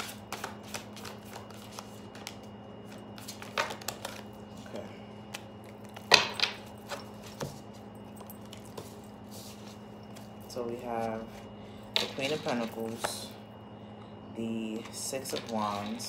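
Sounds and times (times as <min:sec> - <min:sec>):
cards being shuffled: 0:00.0 - 0:04.7.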